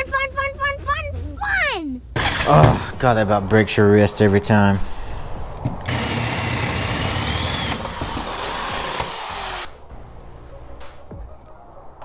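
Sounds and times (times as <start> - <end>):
power drill cutting through metal: 2.2 - 2.9, 5.9 - 9.7.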